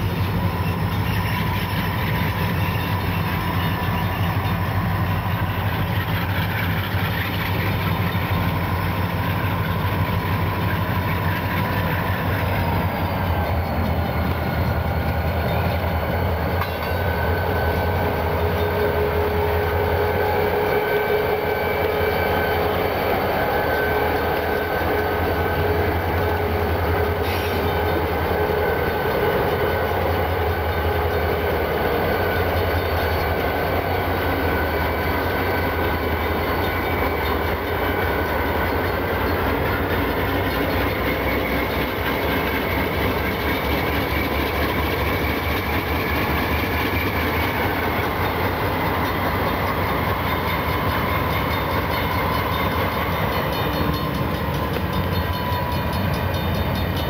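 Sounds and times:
diesel locomotive engine drone: 0.0 - 57.0.

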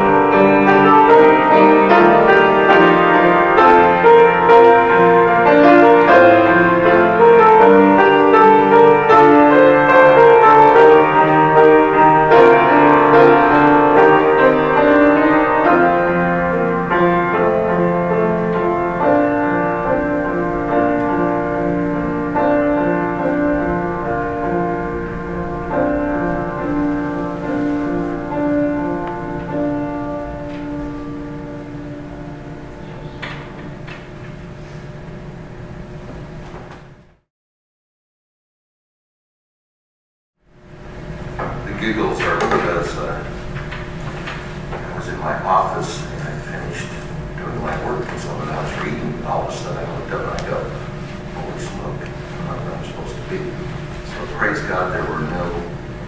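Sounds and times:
solo grand piano: 0.0 - 37.2.

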